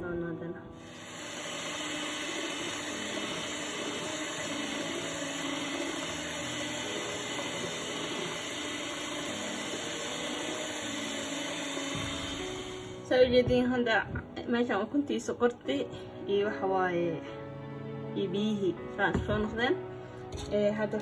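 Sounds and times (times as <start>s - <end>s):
electric hand mixer whirring: 0.8s - 13.1s.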